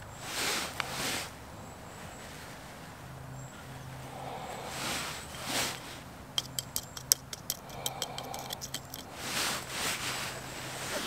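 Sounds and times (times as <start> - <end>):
hand tool clicks and taps: 6.4 - 9.1.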